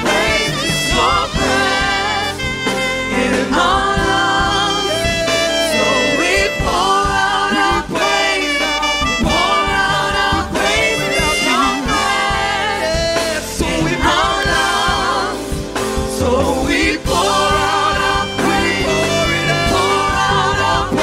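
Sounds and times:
bass guitar: 0.0 - 21.0
choir singing in harmony: 0.0 - 21.0
keyboard: 0.0 - 21.0.

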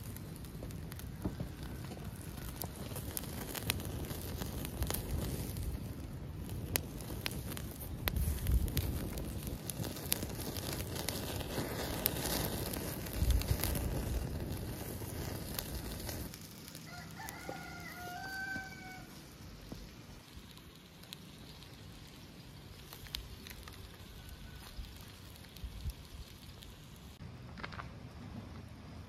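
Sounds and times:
wood fire crackling: 0.0 - 29.0
rooster crowing: 1.1 - 2.8, 16.8 - 19.3.

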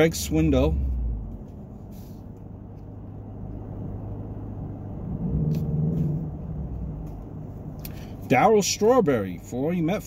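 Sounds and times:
car cabin rumble: 3.4 - 8.4.

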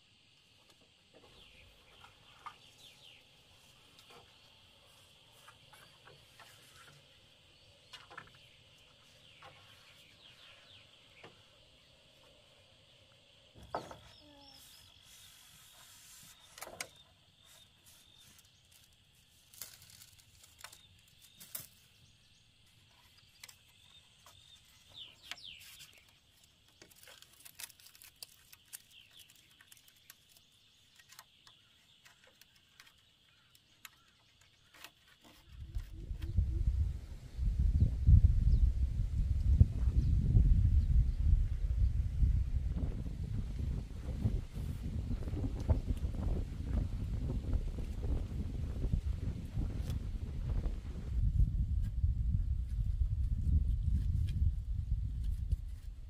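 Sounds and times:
bird chirps: 13.6 - 18.8, 20.8 - 26.2
bamboo poles knocking and clicking: 16.5 - 17.0, 22.9 - 36.0.

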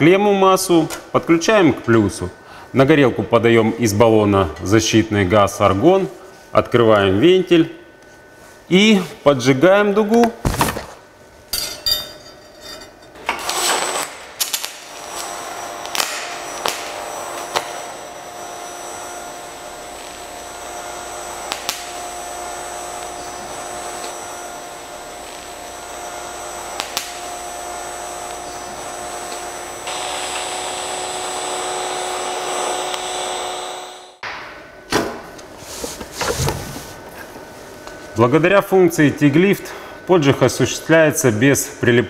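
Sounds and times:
welding arc hissing buzz: 13.2 - 34.2.

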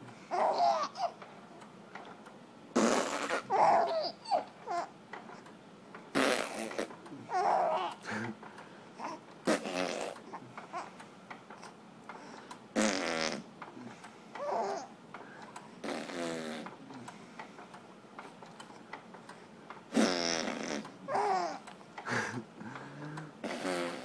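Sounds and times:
infant babbling and cooing: 0.3 - 1.2, 3.1 - 4.9, 6.5 - 8.1, 9.0 - 10.9, 14.4 - 14.9, 20.4 - 21.6.

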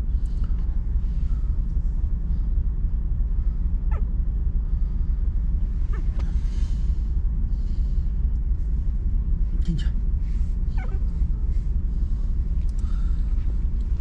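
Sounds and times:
low rumble: 0.0 - 14.0
puppies squeaking: 10.7 - 11.1.

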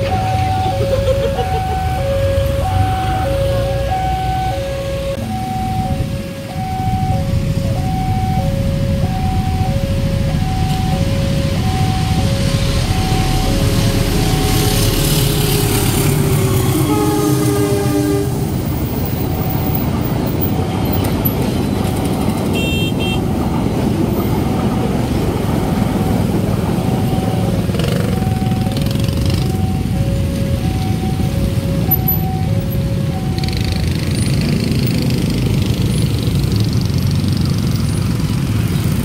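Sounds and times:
level crossing two-tone alarm: 0.0 - 16.0, 25.7 - 34.1
train rumbling: 0.0 - 39.0
train horn: 13.8 - 19.0, 22.5 - 23.3.

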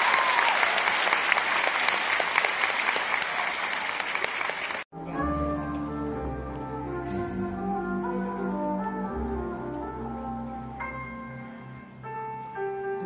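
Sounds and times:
audience applauding: 0.0 - 4.9
piano music: 4.9 - 13.0.

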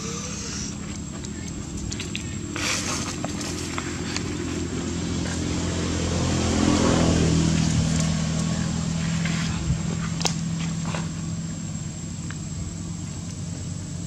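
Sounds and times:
vehicle engine passing: 2.6 - 12.0.

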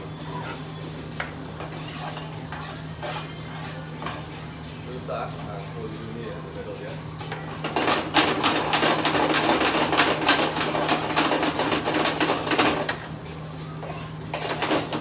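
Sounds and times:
metal spoon scraping frying pan: 1.2 - 4.4, 13.8 - 15.0.

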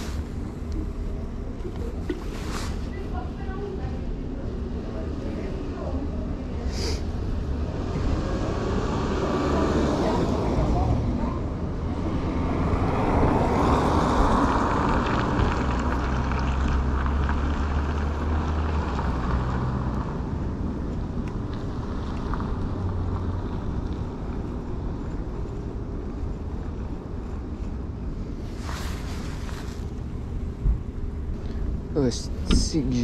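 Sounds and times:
car driving past: 7.2 - 20.3.

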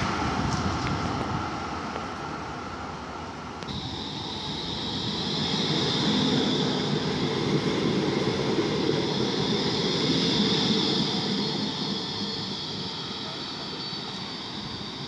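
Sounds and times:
tram wheels rumbling on rails: 0.0 - 15.0
high electric whine: 3.6 - 15.0.

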